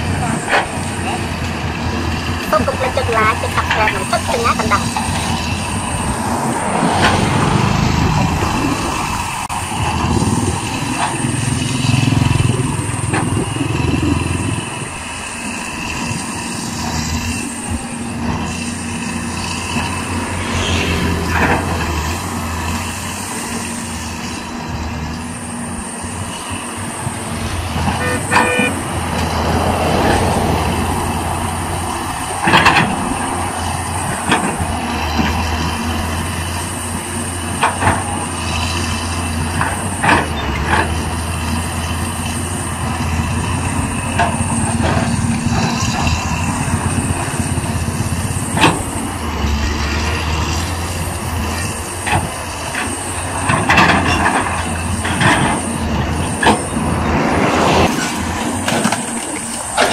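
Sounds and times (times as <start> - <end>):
excavator diesel engine running: 0.0 - 59.9.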